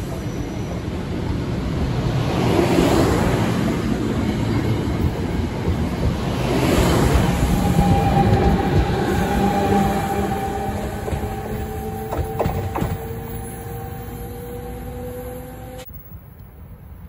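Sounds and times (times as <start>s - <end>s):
electric train rumbling past: 0.0s - 15.9s
wheels clacking over rail joints: 5.0s - 13.6s.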